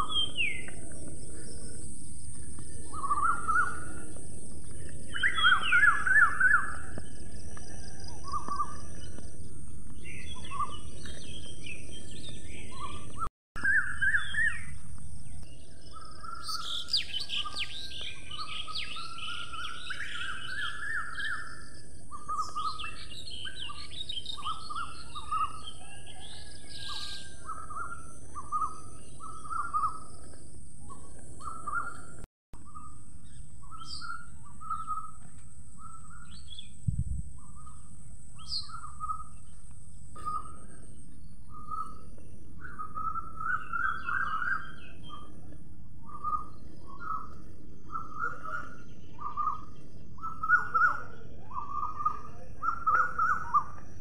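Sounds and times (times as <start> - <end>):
birds chirping: 0.0 - 54.0
low outdoor background noise: 0.0 - 54.0.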